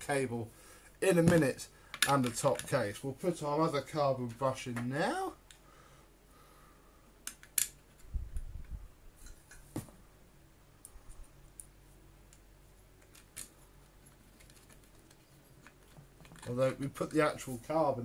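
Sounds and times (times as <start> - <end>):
clicks and taps of small parts: 1.3 - 2.8, 7.2 - 8.1.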